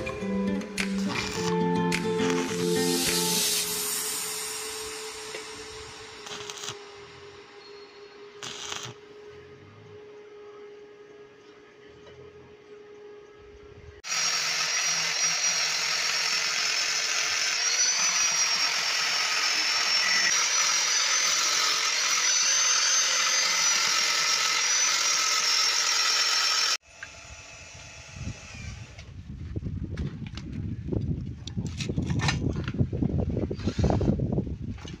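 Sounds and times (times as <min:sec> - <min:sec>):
angle grinder grinding steel: 0:00.7 - 0:09.1, 0:14.0 - 0:28.6.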